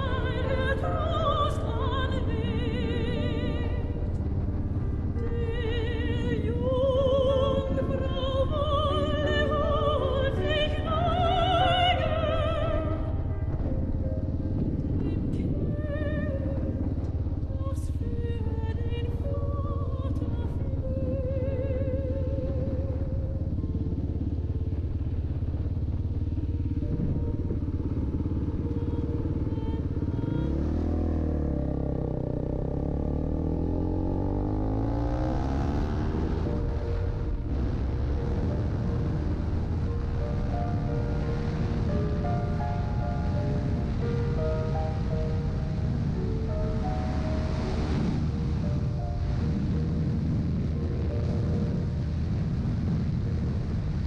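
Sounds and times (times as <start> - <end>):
operatic singing: 0.0 - 14.2
motorcycle engine running: 0.0 - 54.0
steady low rumble: 0.0 - 54.0.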